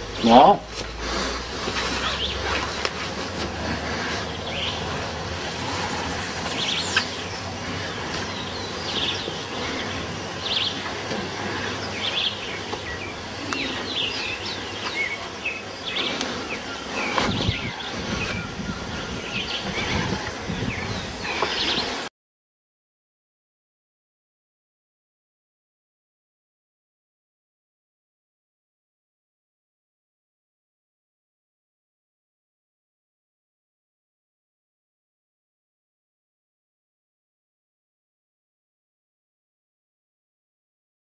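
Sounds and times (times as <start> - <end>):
birds chirping: 0.0 - 22.1
outdoor background hiss: 0.0 - 22.1
rustling: 0.0 - 22.1.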